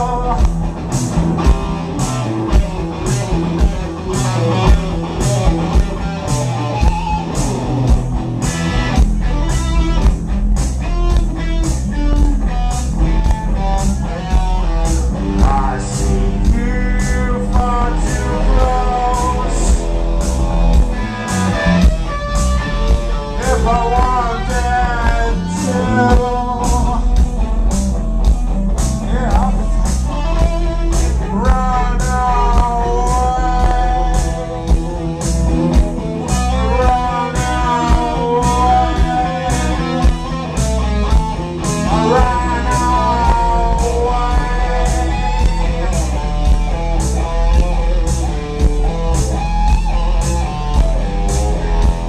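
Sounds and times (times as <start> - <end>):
man singing into a microphone: 0.0 - 0.6, 15.1 - 20.1, 23.3 - 27.3, 29.0 - 34.6, 36.3 - 40.1, 41.8 - 46.2
electric guitar: 0.0 - 52.0
heavy bass line: 0.0 - 52.0
steady drum beat: 0.0 - 52.0.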